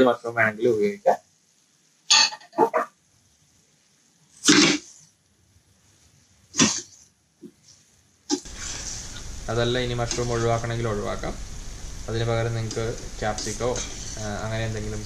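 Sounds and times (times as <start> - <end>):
metal spatula scraping pan: 13.4 - 14.2.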